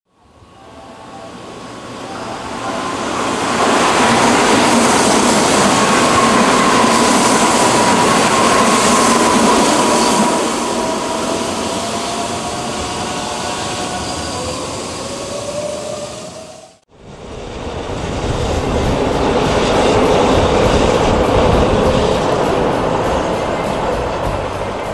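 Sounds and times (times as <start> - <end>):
train wheels rushing on rails: 1.2 - 24.9
rising whine: 13.7 - 24.9.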